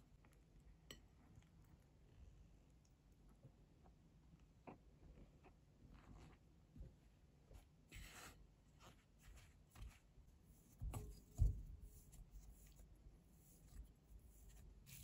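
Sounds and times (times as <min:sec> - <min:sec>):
dull thumps of dough: 0:10.7 - 0:12.3
spatula scraping dough in bowl: 0:13.4 - 0:15.0.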